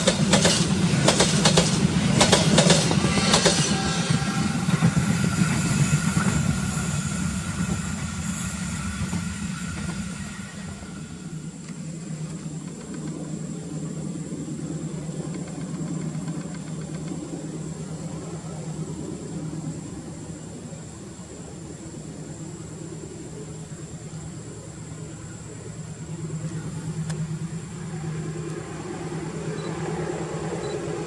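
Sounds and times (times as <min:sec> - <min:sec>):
diesel train engine hum: 0:00.0 - 0:31.0.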